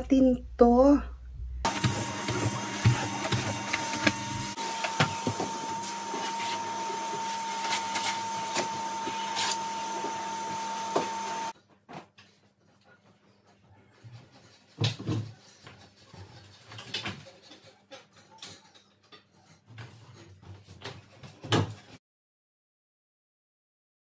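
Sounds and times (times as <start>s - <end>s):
vacuum cleaner motor whine: 1.7s - 11.6s.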